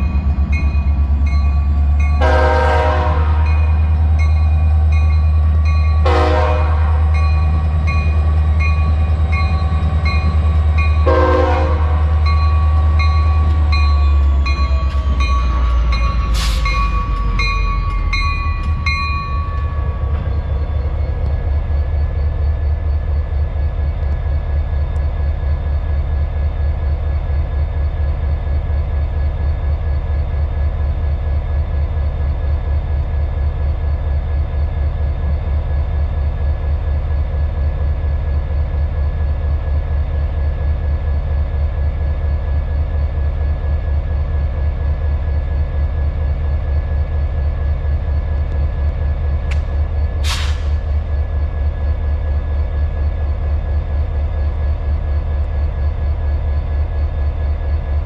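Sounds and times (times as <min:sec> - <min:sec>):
diesel locomotive rumble: 0:00.0 - 0:58.0
train rolling pulsing: 0:00.0 - 0:58.0
locomotive air horn: 0:02.2 - 0:03.7, 0:06.0 - 0:07.1, 0:11.0 - 0:12.1.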